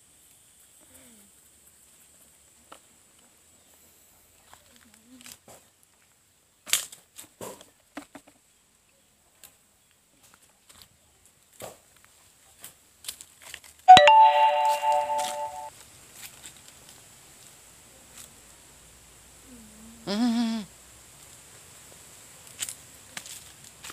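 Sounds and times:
chime-like music: 13.9s - 15.7s.

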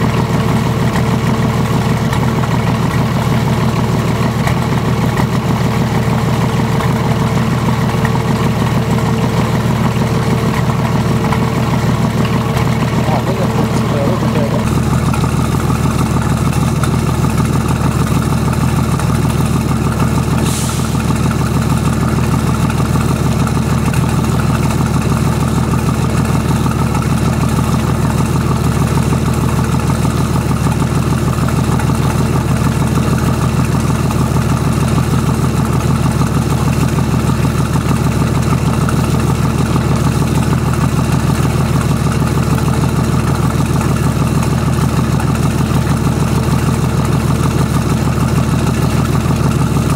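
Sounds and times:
diesel engine idling: 0.0s - 49.9s.

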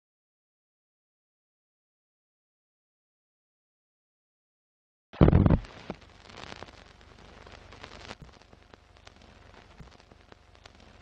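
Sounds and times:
loud burst: 5.2s - 8.3s
faint steady hiss: 5.2s - 11.0s
film crackle clicks and pops: 5.2s - 11.0s.

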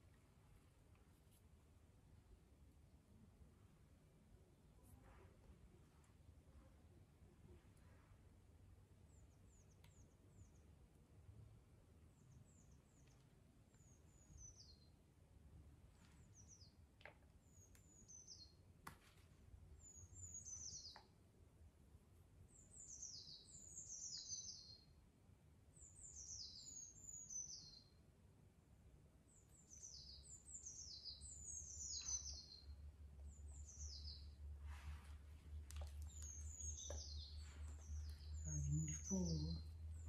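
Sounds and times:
small bird chirping: 12.2s - 15.0s, 16.0s - 18.6s, 19.8s - 21.2s, 22.5s - 25.0s, 25.8s - 28.0s, 29.3s - 34.4s, 35.1s - 40.0s.

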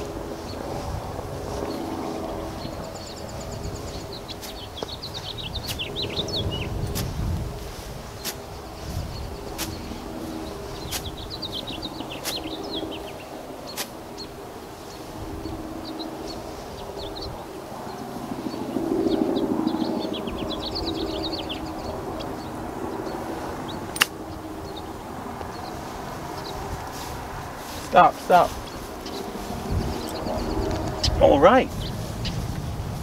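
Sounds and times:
distant motor hum: 0.0s - 33.0s
small birds chirping: 0.0s - 33.0s
sharp ticks: 23.9s - 24.2s.

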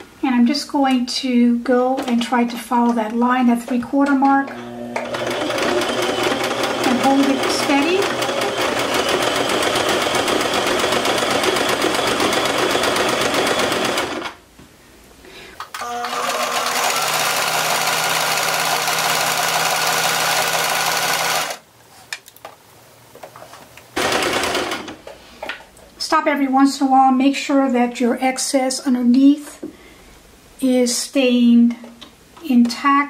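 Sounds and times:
sewing machine running: 4.5s - 14.4s, 15.8s - 21.6s, 24.0s - 25.0s.

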